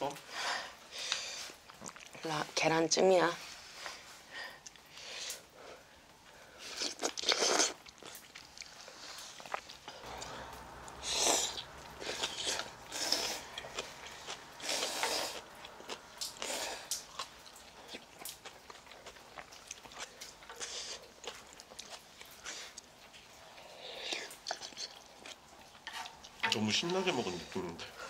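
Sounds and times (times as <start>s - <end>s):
chewing: 1.0s - 2.2s, 3.8s - 5.6s, 6.5s - 28.0s
people slurping noodles: 8.8s - 18.4s.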